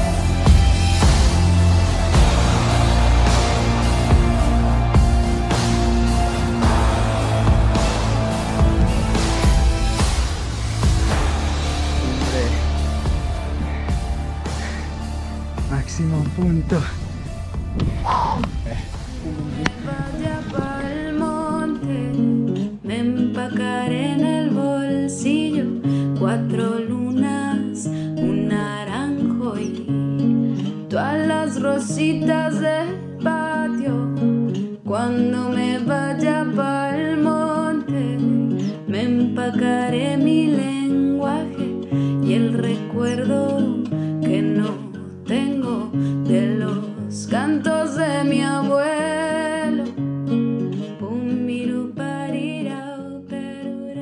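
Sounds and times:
acoustic guitar song with vocals: 0:00.0 - 0:15.7, 0:19.0 - 0:54.0.

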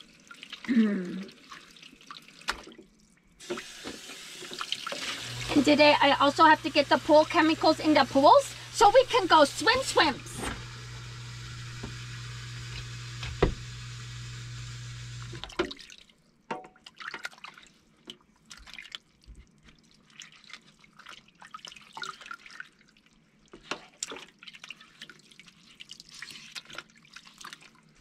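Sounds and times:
water splashing and dripping: 0:00.0 - 0:05.8, 0:15.4 - 0:28.0
steady humming noise: 0:05.2 - 0:15.5.

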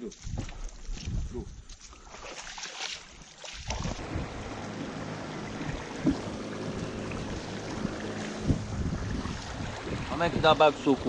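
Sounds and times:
water noise: 0:00.0 - 0:11.0
wind noise: 0:00.2 - 0:01.7, 0:03.6 - 0:04.9, 0:05.5 - 0:11.0
boat motor running: 0:03.7 - 0:11.0.

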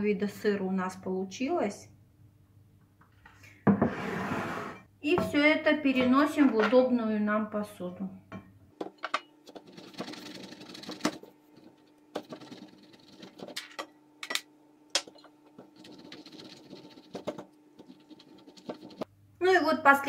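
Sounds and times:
faint steady hum: 0:04.8 - 0:20.0
cheese grating rasps: 0:09.5 - 0:13.6, 0:15.6 - 0:19.1.

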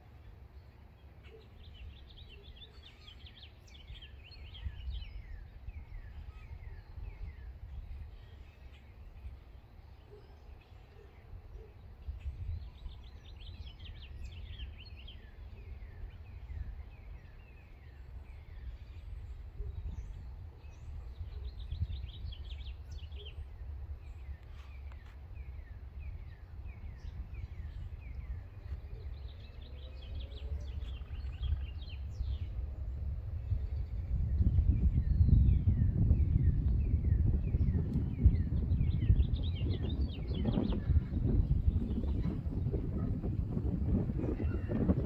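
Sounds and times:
songbirds chirping: 0:00.0 - 0:45.0
low steady rumble: 0:25.3 - 0:45.0.

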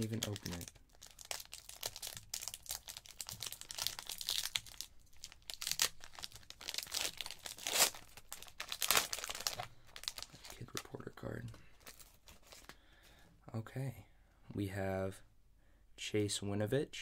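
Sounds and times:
foil wrapper crinkling and tearing: 0:00.0 - 0:10.9, 0:11.8 - 0:12.8.

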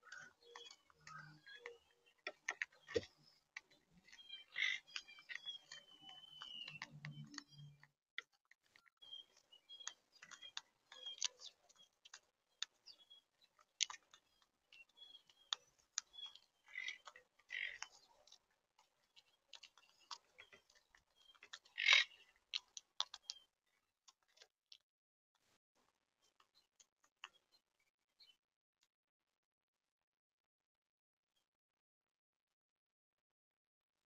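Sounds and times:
faint high bird chirps: 0:00.0 - 0:07.9, 0:08.8 - 0:18.4
beaks cracking seeds: 0:08.6 - 0:23.5.

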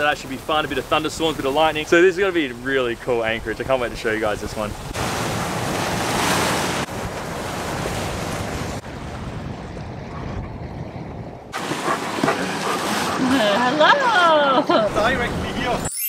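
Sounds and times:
water rushing past hull: 0:00.0 - 0:15.8
wind on microphone: 0:05.8 - 0:12.8.

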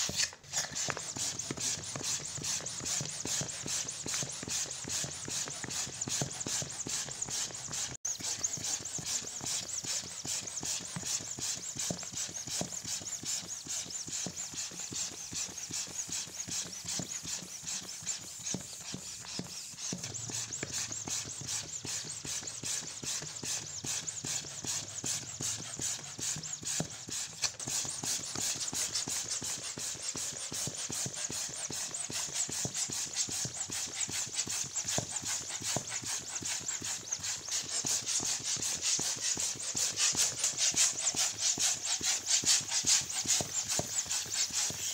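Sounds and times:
electric balloon pump pulsing: 0:00.0 - 0:44.9.

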